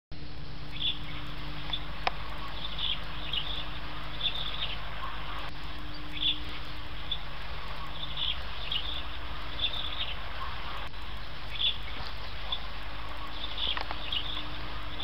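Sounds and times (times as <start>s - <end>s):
small birds chirping: 0.2s - 15.0s.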